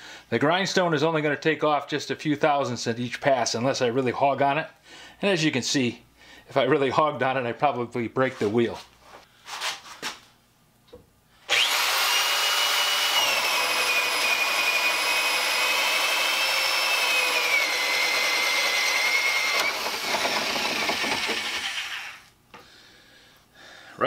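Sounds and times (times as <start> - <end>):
electric drill cutting wood: 11.5 - 22.3.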